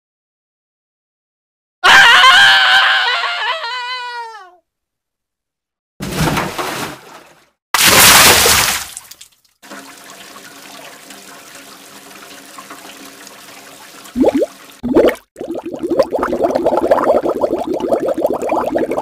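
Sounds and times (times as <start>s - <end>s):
person splashing into water: 6.0s - 9.4s, 14.2s - 15.5s
water washing: 7.8s - 15.5s.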